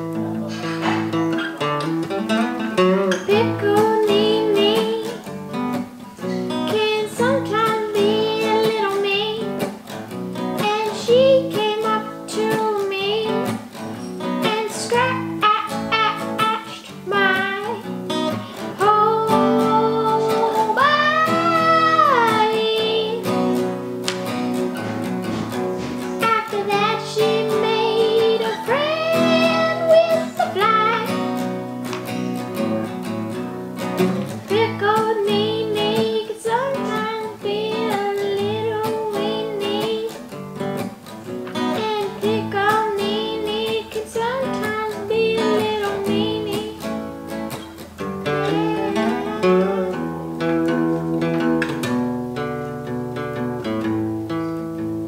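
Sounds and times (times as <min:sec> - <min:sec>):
acoustic guitar strumming: 0:00.0 - 0:55.0
young voice singing: 0:03.1 - 0:05.3, 0:06.2 - 0:09.8, 0:10.4 - 0:23.8, 0:24.8 - 0:31.7, 0:34.2 - 0:40.4, 0:41.5 - 0:51.2.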